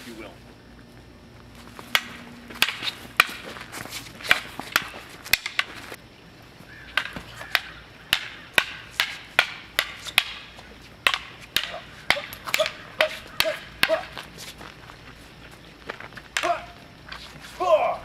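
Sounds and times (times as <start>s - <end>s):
wooden sticks clacking: 1.8s - 5.9s, 6.9s - 14.5s, 16.3s - 16.7s.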